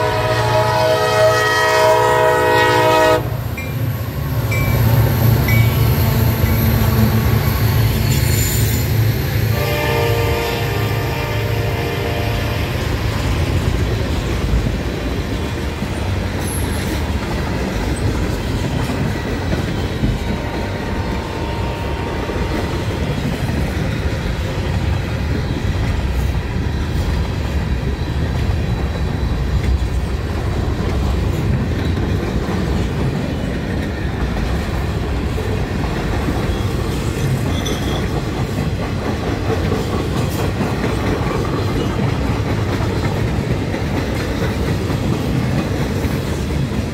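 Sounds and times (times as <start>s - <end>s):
freight train rumbling: 0.0s - 46.9s
wheels clattering on rails: 13.0s - 21.5s, 22.3s - 46.9s.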